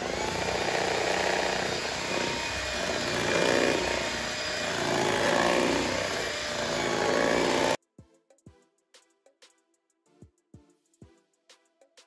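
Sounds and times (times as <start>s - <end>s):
electric hand mixer running: 0.0s - 7.8s.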